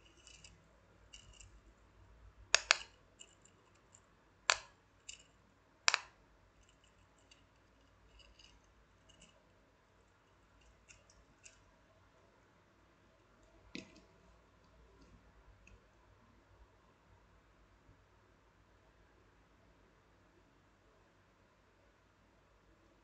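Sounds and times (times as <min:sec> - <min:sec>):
plastic fidget toy clicks: 0:02.6 - 0:02.9.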